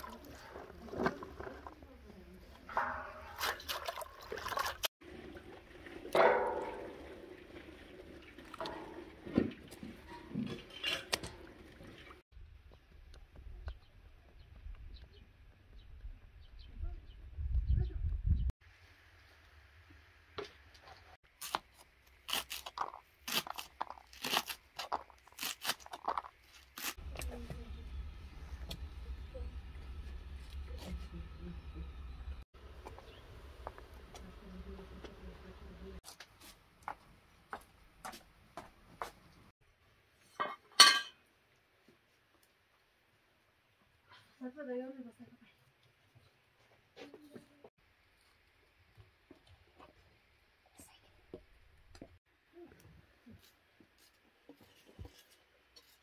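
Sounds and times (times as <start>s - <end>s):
metal basin ringing: 2.6s - 3.7s, 6.1s - 7.6s, 8.5s - 9.4s, 40.8s - 41.2s
splash into metal basin: 2.7s - 9.7s
water splashing and dripping: 2.7s - 12.2s.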